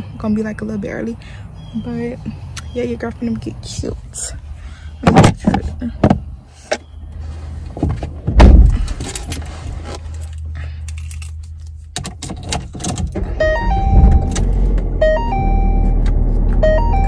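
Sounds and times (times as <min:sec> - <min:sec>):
loud thump: 0:08.3 - 0:08.8
car cabin hum: 0:12.2 - 0:17.0
electronic tone melody: 0:13.4 - 0:17.0.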